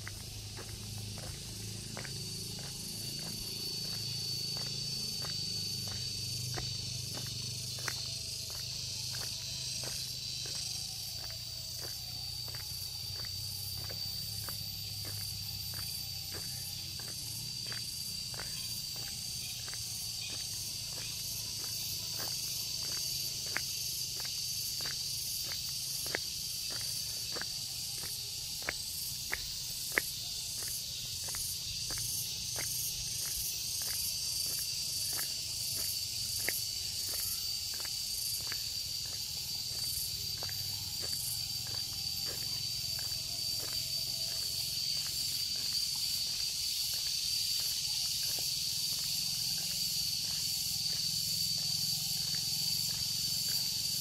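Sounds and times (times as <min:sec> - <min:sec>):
footsteps: 0:00.0 - 0:23.0
insects trilling: 0:00.0 - 0:54.0.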